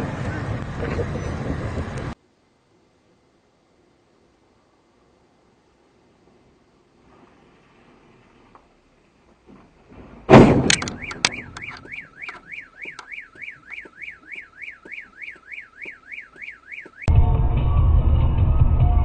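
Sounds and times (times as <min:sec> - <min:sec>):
loud crash with clattering: 0:09.9 - 0:10.9
car alarm wailing: 0:10.7 - 0:17.1.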